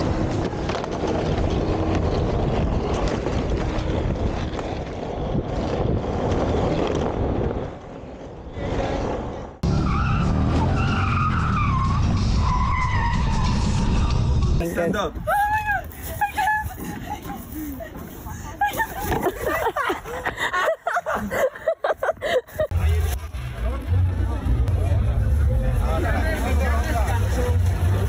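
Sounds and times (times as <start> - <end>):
skateboard wheels rolling on concrete: 0.0 - 9.6, 12.4 - 28.0
wind noise: 0.0 - 9.7.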